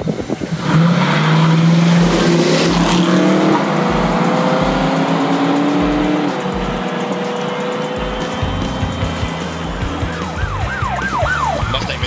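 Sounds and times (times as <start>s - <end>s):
car engines accelerating hard: 0.0s - 12.0s.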